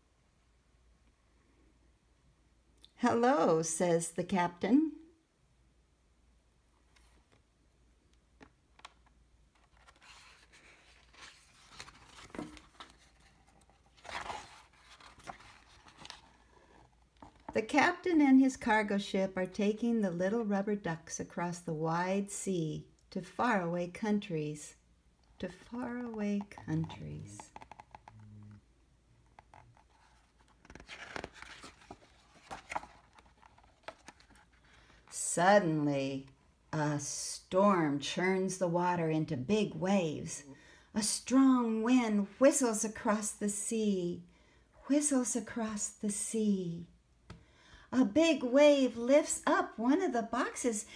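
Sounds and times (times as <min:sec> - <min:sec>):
book pages rustling: 0:08.4 - 0:17.6, 0:25.5 - 0:28.6, 0:29.2 - 0:35.2
page turning: 0:08.4 - 0:17.6, 0:26.0 - 0:28.5, 0:29.2 - 0:34.6.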